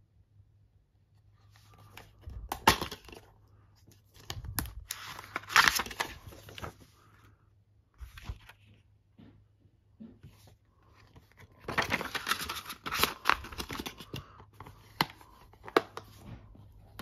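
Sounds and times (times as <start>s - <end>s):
paper insert crinkling: 1.5s - 7.2s, 8.0s - 8.8s, 10.9s - 17.0s.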